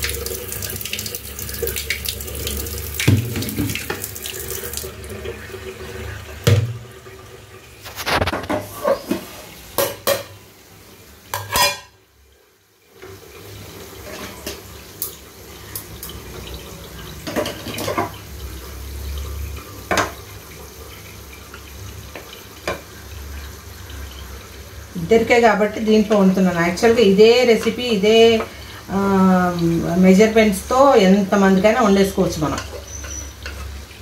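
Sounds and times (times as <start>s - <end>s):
metal pots and utensils clinking: 7.9s - 10.4s, 11.3s - 12.0s, 14.0s - 15.1s, 17.2s - 18.2s, 32.3s - 33.8s.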